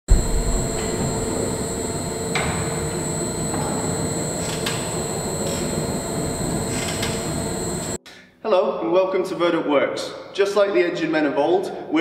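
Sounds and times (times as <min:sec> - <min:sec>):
beam engine rumble and hum: 0:00.1 - 0:08.0.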